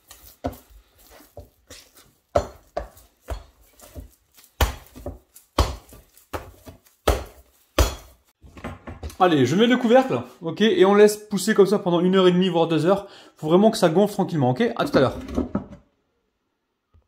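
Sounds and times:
dough thumping in wooden bowl: 0.0s - 9.2s.

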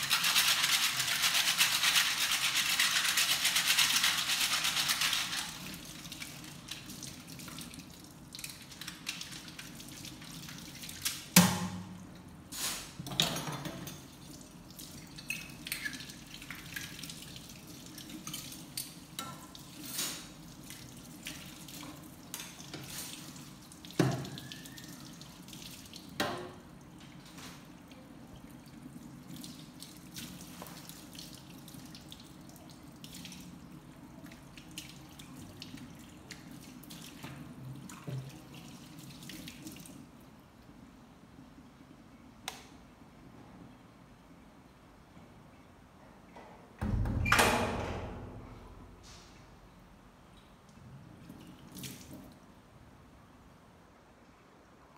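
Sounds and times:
water splashing and dripping: 0.0s - 12.2s, 13.8s - 40.2s, 50.6s - 52.5s.

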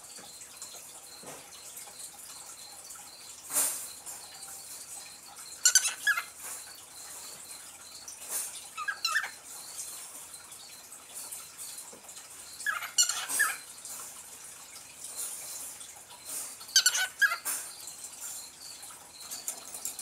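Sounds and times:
cockatiel chirping: 5.6s - 7.3s, 8.8s - 9.4s.

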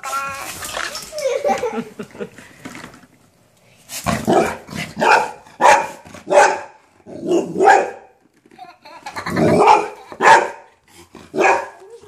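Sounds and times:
dog barking: 4.3s - 8.1s, 9.5s - 10.7s, 11.3s - 11.8s.

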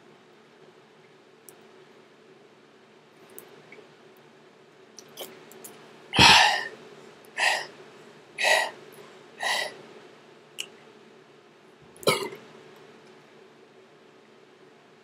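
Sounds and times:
low steady hum: 0.0s - 15.0s
man making throaty bursts: 6.2s - 6.7s.

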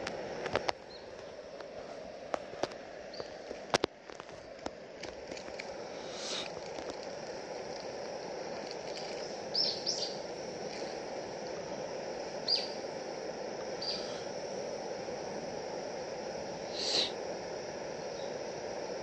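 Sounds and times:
gas flame hissing: 0.0s - 19.0s
bird chirping: 9.5s - 10.2s, 13.8s - 14.2s.

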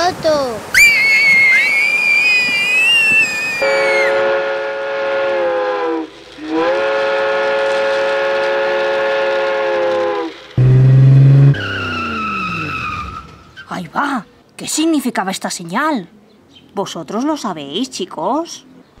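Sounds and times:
wavering high whistle: 0.7s - 4.4s, 10.6s - 13.6s
train horn blasts: 3.6s - 12.8s
loud low buzz: 10.6s - 12.2s.

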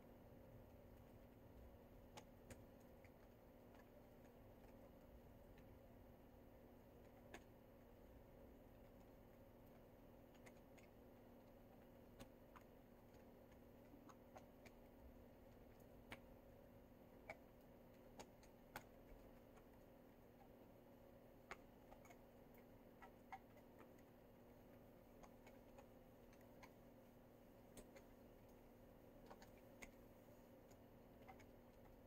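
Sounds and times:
faint steady hum: 0.0s - 32.0s
faint clicks and ticks: 0.1s - 32.0s.

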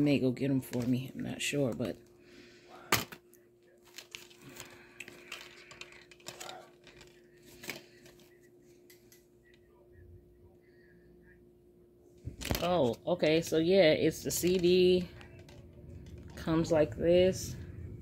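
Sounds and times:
faint steady hum: 0.0s - 18.0s
plastic wrapping crinkling: 3.8s - 8.4s.

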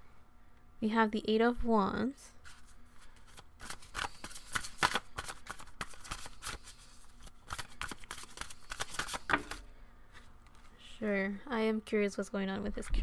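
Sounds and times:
cards shuffling: 2.4s - 9.7s.

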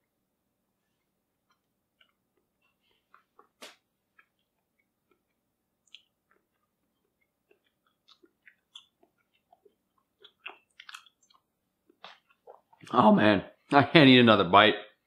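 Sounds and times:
mouth clicks and smacks chewing: 1.5s - 12.9s.

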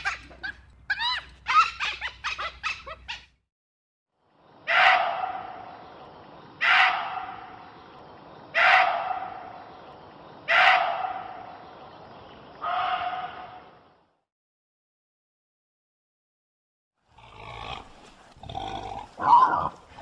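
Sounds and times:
deer barking: 4.7s - 5.6s, 6.6s - 7.5s, 8.6s - 9.5s, 10.5s - 11.4s, 12.6s - 13.6s.

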